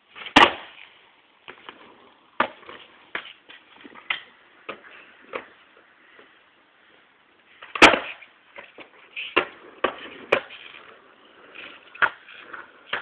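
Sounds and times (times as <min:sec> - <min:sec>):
skateboard wheels rolling on concrete: 0:00.0 - 0:13.0
skateboard landing on concrete: 0:00.1 - 0:06.4, 0:07.5 - 0:13.0
skateboard clacks: 0:00.2 - 0:00.8, 0:07.6 - 0:13.0.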